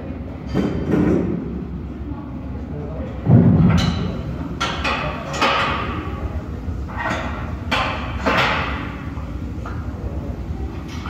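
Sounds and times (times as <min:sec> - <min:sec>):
heavy thump: 0:03.2 - 0:04.2.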